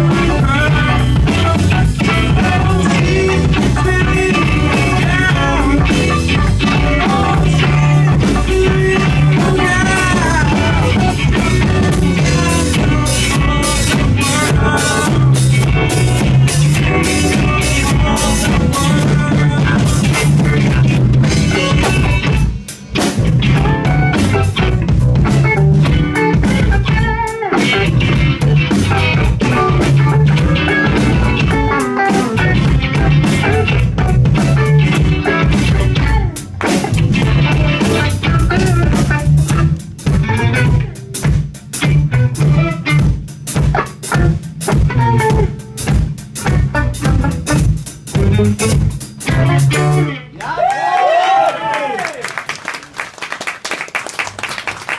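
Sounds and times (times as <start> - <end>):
live rock band playing: 0.0 - 50.7.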